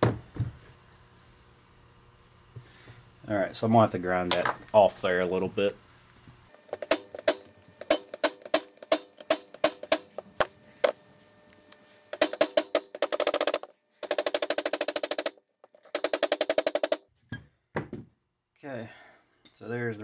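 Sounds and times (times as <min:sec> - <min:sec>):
hammer striking steel punch: 0:06.8 - 0:10.1, 0:12.2 - 0:13.2.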